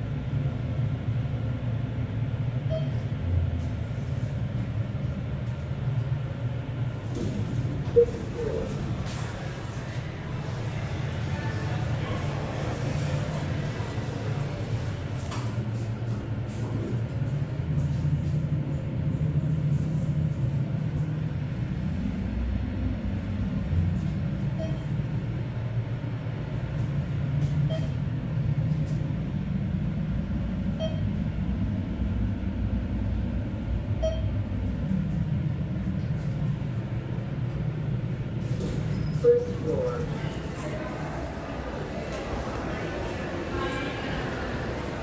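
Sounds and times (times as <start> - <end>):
elevator low rumble: 0.0 - 45.0
elevator arrival chime: 2.6 - 3.1, 7.8 - 8.8, 24.4 - 25.1, 27.6 - 28.1, 30.7 - 31.3, 33.9 - 34.5, 38.9 - 45.0
faint short beep: 2.6 - 3.1, 7.9 - 8.7, 24.5 - 25.0, 27.6 - 28.0, 30.7 - 31.2, 34.0 - 34.4
elevator doors opening: 4.6 - 18.7, 23.2 - 32.2, 33.1 - 45.0.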